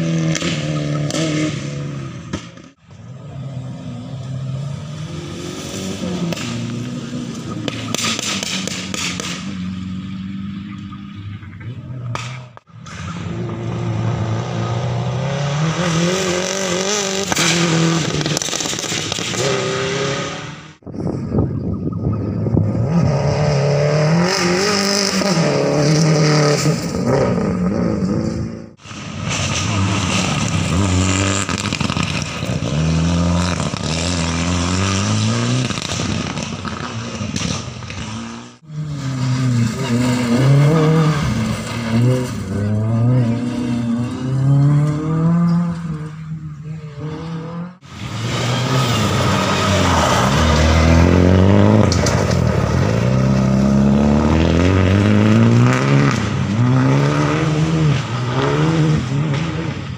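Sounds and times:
rally car engines revving: 0.0s - 59.9s
tyres rushing on gravel: 28.8s - 34.1s.

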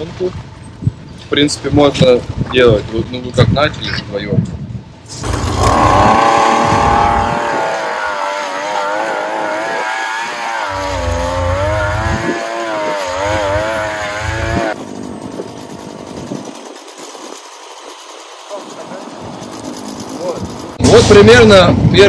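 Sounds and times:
earth auger engine running: 5.2s - 20.6s.

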